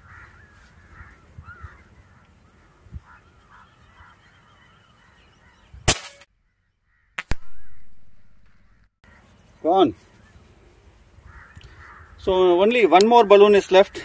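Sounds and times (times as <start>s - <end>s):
birds calling: 0.0s - 14.0s
air rifle shot: 5.8s - 6.3s, 7.2s - 8.6s
sharp cracks: 5.9s - 6.3s, 7.1s - 8.8s.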